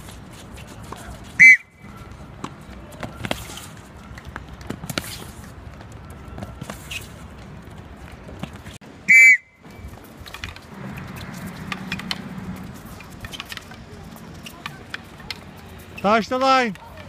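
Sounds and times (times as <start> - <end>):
whistle blast: 1.4 - 1.9, 9.1 - 9.8.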